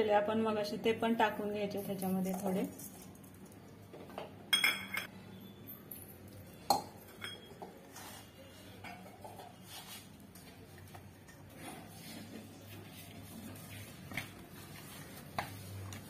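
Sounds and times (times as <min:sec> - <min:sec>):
metal bowl clinking: 0:04.5 - 0:05.1, 0:05.9 - 0:08.0
hands rubbing dough: 0:09.4 - 0:16.0.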